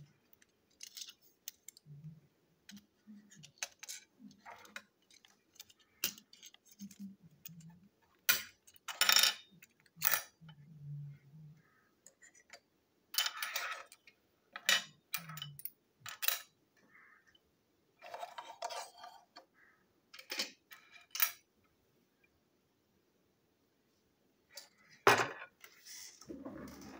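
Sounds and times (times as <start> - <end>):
plastic toy parts clicking and clattering: 0.0 - 10.5, 12.0 - 16.5, 20.2 - 21.5.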